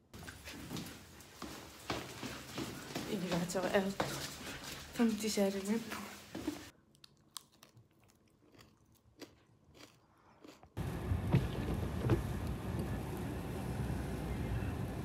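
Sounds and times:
chewing and crunching: 6.8s - 10.8s
car interior rumble: 10.8s - 15.0s.

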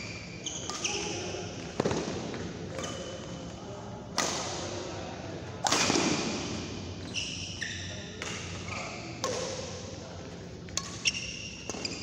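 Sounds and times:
racket hitting shuttlecock: 0.6s - 3.0s, 4.1s - 4.6s, 5.6s - 6.5s, 9.2s - 9.7s.

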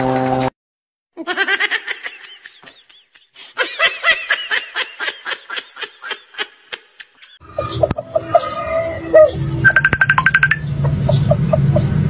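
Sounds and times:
canned laughter: 1.2s - 7.4s.

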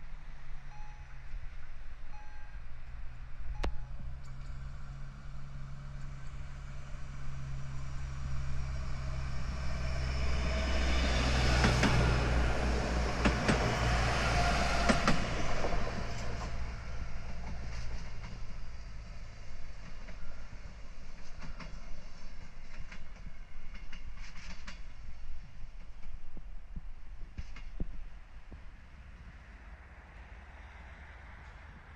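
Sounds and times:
railbus engine hum: 0.0s - 31.9s
wheels clicking over rail joints: 11.4s - 26.6s.

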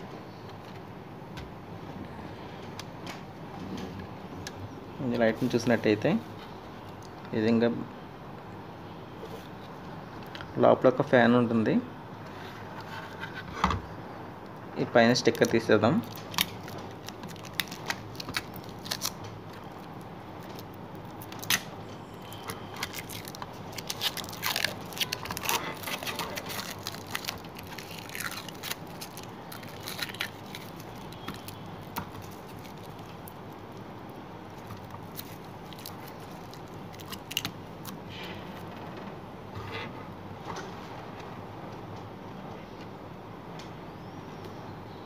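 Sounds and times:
plastic film crackling: 15.3s - 38.1s.

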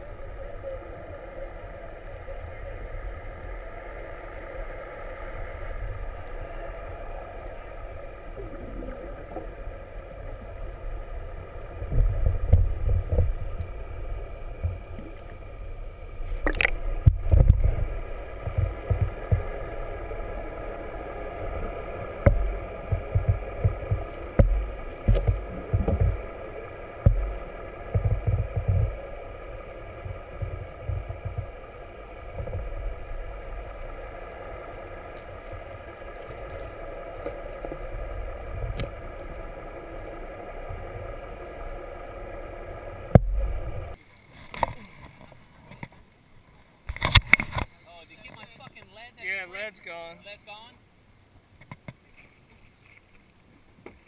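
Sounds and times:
muffled underwater hum: 0.0s - 47.6s
water thumps and rumbles: 10.2s - 44.7s.

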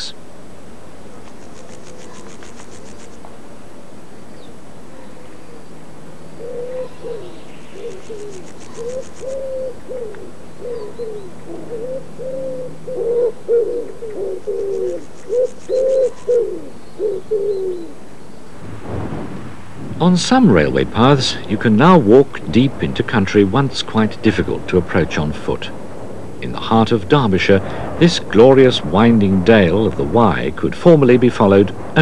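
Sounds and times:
faint high rhythmic buzzing: 0.0s - 17.5s
dove cooing: 6.3s - 18.0s.

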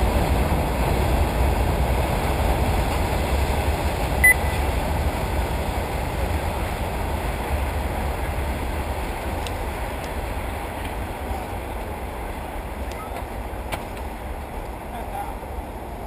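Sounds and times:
wind rumble on microphone: 0.0s - 16.0s
short high electronic beep: 4.2s - 4.6s.

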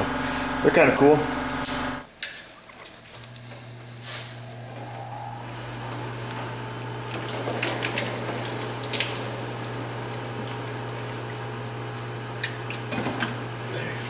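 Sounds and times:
coolant trickling and dripping: 4.2s - 12.9s.

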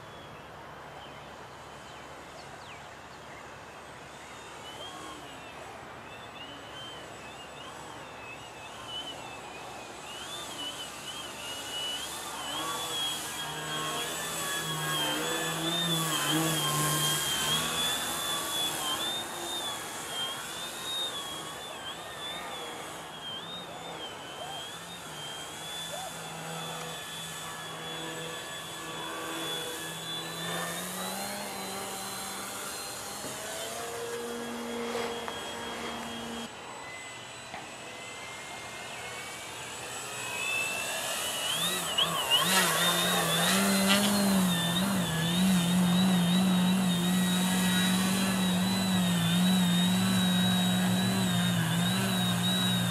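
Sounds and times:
model plane motor whining: 0.0s - 52.9s.

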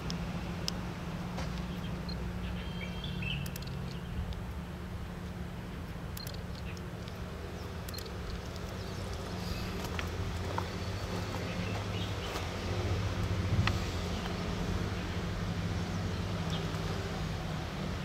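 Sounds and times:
low mechanical hum: 0.0s - 18.0s
birds chirping: 1.6s - 4.4s, 5.5s - 18.0s
faint ticks: 7.8s - 9.3s.

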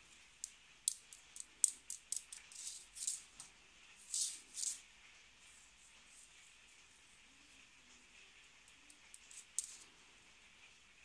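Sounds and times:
scratchy rustles: 2.4s - 4.8s.

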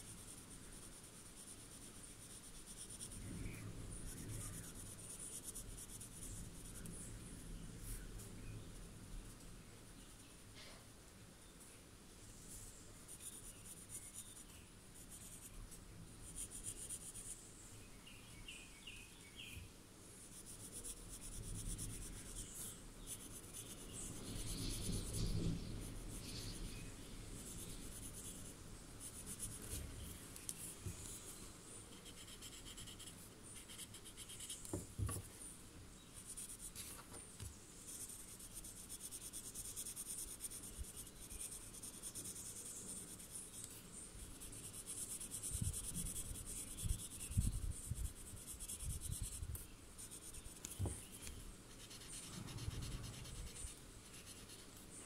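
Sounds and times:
pencil scratching on paper: 0.0s - 7.2s, 13.1s - 17.4s, 20.2s - 35.3s, 36.2s - 37.0s, 37.8s - 54.8s.

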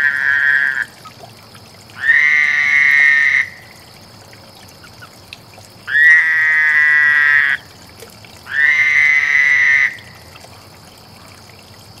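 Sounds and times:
frog trilled calls: 0.0s - 1.2s, 2.0s - 3.7s, 5.9s - 7.7s, 8.5s - 10.2s.

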